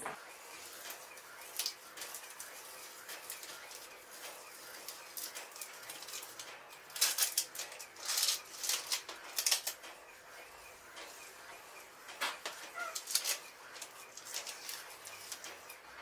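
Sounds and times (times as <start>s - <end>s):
tape peeling off a wall: 0.6s - 9.9s, 12.3s - 15.8s.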